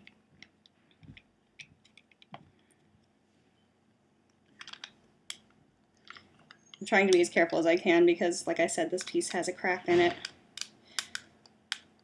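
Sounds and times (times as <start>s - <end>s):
plastic toy parts clicking: 4.6s - 7.6s, 9.0s - 9.4s, 10.1s - 12.0s.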